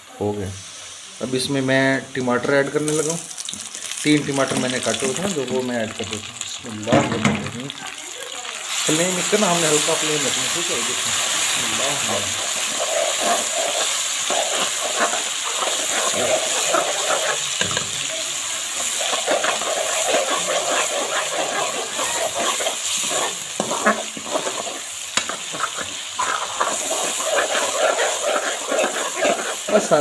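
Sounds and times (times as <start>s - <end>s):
food sizzling in oil: 0.0s - 30.0s
metal spoon scraping a pan: 8.9s - 30.0s.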